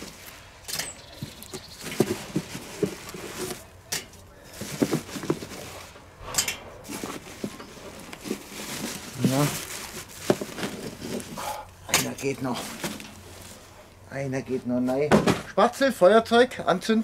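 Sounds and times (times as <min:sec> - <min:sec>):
charcoal clattering into metal: 0:00.7 - 0:05.6
plastic bag crinkling: 0:06.9 - 0:11.4.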